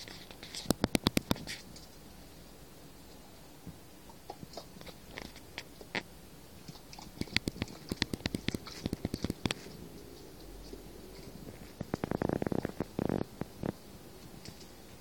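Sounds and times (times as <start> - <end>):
irregular clicking and crackling: 0.0 - 2.0, 4.3 - 15.0.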